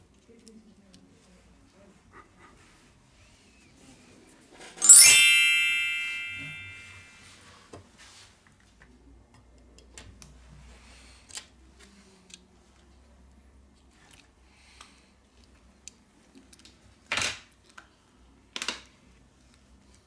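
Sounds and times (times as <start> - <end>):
bright chime: 4.8 - 7.1.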